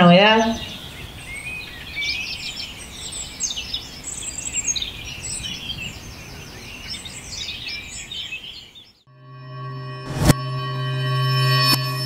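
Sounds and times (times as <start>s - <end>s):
small birds chirping: 0.0s - 9.0s.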